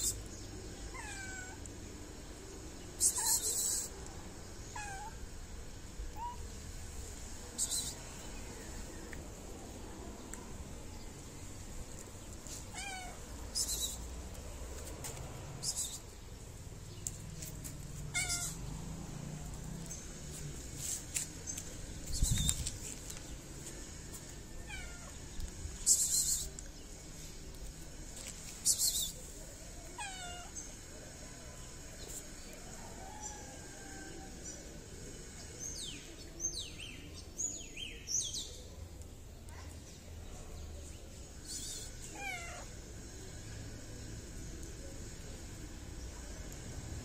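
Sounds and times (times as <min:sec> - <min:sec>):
cat meowing: 0:00.9 - 0:01.7, 0:04.7 - 0:05.2, 0:12.6 - 0:13.2, 0:18.1 - 0:18.6, 0:24.6 - 0:25.2, 0:30.0 - 0:30.5, 0:42.1 - 0:42.7
cat hissing: 0:03.0 - 0:03.9, 0:18.0 - 0:18.8.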